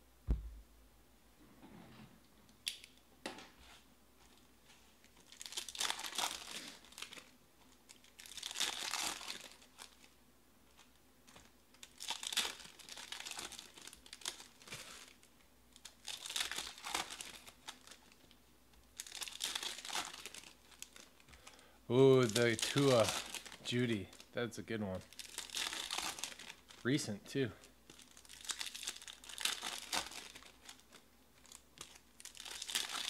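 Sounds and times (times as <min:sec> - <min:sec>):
foil wrappers crinkling: 0:05.0 - 0:27.0, 0:27.6 - 0:33.0.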